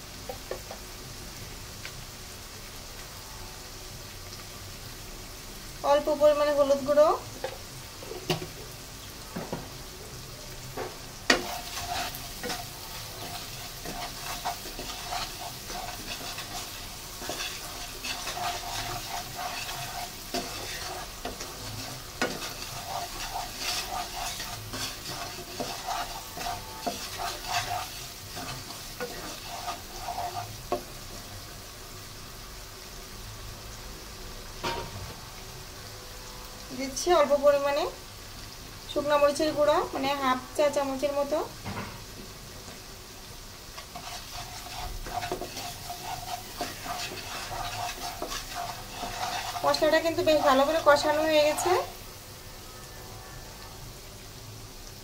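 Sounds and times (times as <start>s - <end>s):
paste sizzling in oil: 0.0s - 55.0s
wooden spatula scraping wok: 10.7s - 31.2s, 43.7s - 52.0s.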